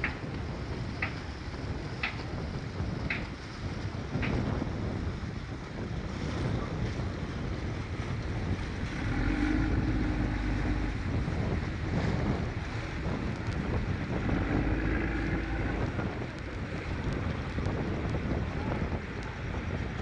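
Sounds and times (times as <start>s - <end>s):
boat engine running: 0.0s - 20.0s
water churning: 0.0s - 20.0s
wind buffeting microphone: 0.0s - 20.0s
steady droning tone: 8.6s - 17.6s.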